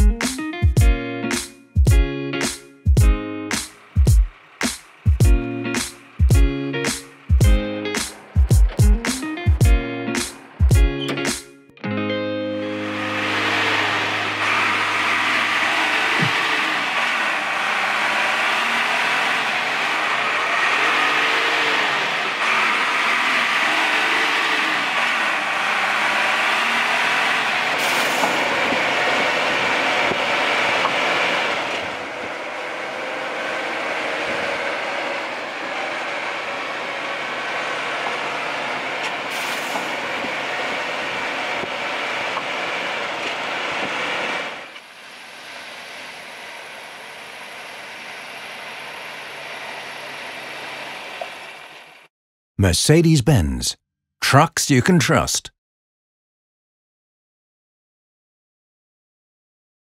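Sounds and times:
road noise: 3.4 - 11.5, 12.5 - 52.1.

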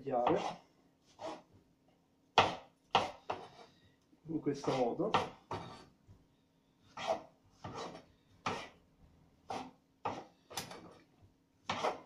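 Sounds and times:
knife cutting on a cutting board: 0.3 - 1.5, 2.4 - 3.8, 4.6 - 5.9, 6.8 - 8.8, 9.4 - 11.0, 11.6 - 12.0.

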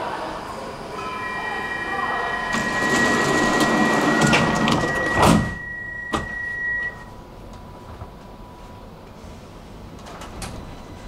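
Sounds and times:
train rumbling: 0.0 - 5.6
steady high tone: 0.6 - 7.2.

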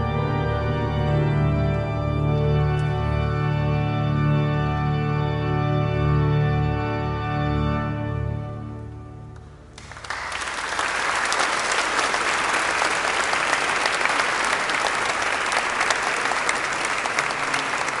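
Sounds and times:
organ chord: 0.0 - 18.0
audience applause: 9.7 - 18.0.

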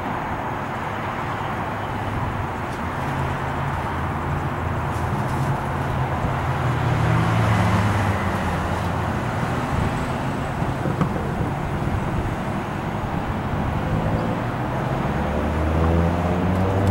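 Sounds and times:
distant engine drone: 0.0 - 16.9
outdoor background noise: 0.0 - 16.9.

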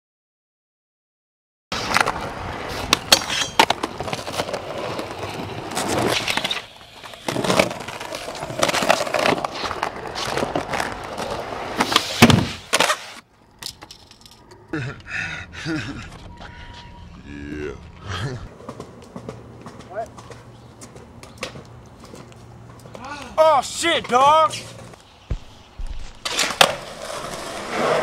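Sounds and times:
skateboard popping and landing: 1.7 - 13.9, 18.5 - 23.0, 24.0 - 28.0
skateboard wheels rolling on concrete: 1.7 - 14.7, 18.4 - 28.0.

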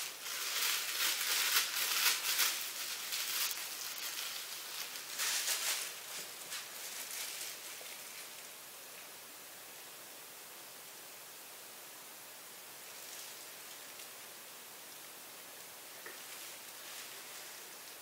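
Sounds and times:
plastic rustling: 0.0 - 9.1, 12.8 - 14.2, 15.9 - 18.0
steady hiss: 0.0 - 18.0.

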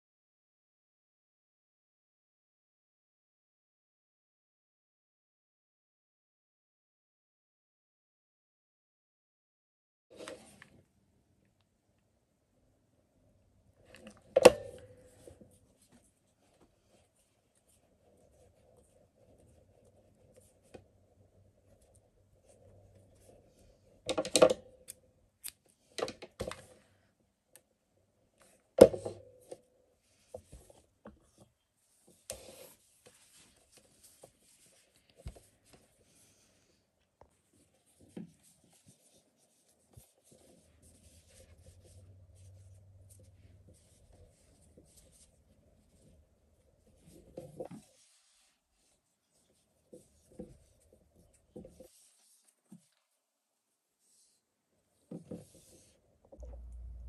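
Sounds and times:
yarn rubbing: 37.5 - 52.9.

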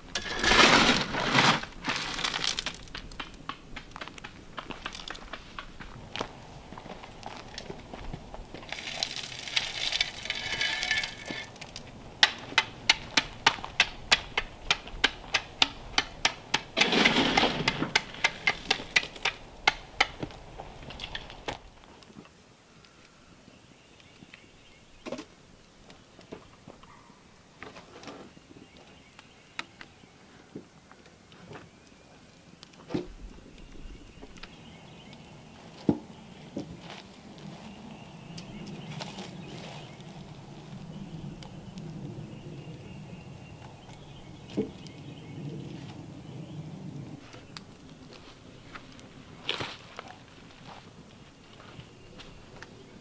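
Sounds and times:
hatchet striking wood: 12.2 - 20.3.

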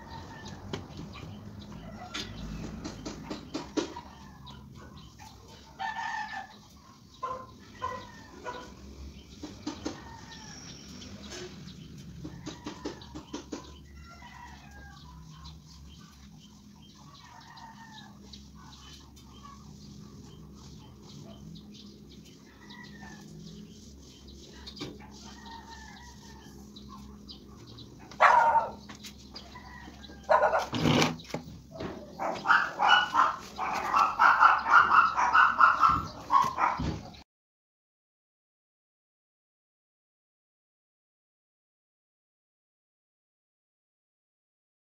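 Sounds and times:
chickens clucking: 0.0 - 37.2
dog barking high: 28.1 - 28.8, 30.3 - 30.8, 32.1 - 37.0.

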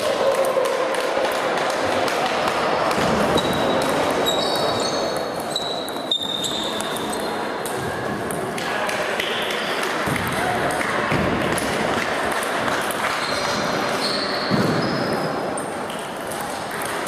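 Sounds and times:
background chatter: 0.0 - 17.0
short high squeaks: 3.4 - 7.4.

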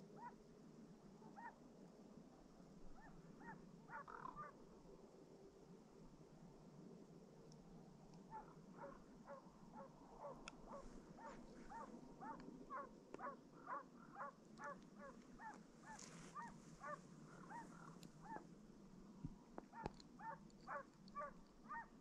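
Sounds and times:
hounds baying: 8.3 - 18.5, 19.7 - 22.0.

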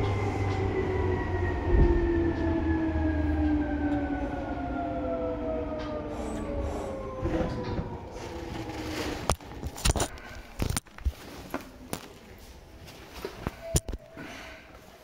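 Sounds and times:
train motors whining: 0.0 - 11.1
low train rumble: 0.0 - 15.0.

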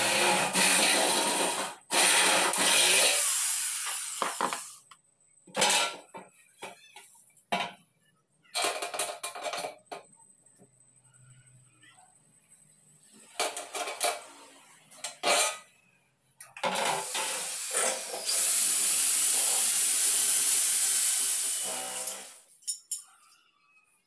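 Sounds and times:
electric drill boring into metal: 0.0 - 4.8, 16.8 - 22.4.

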